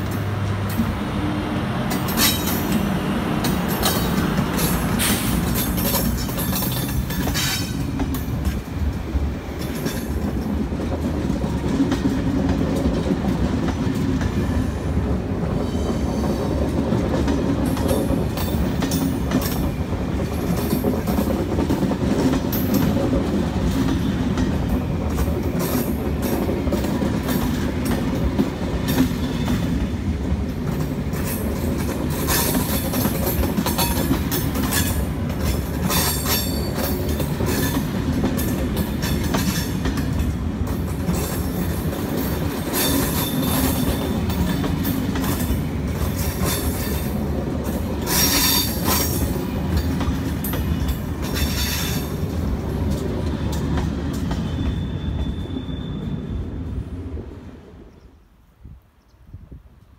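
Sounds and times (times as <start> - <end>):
train wheels clicking over rail joints: 0.0 - 55.8.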